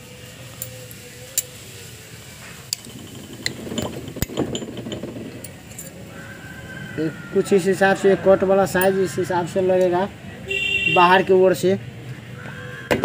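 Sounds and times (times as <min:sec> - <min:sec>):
metal parts clinking and tapping: 0:02.7 - 0:06.0
sharp metal knocks: 0:02.8 - 0:05.9.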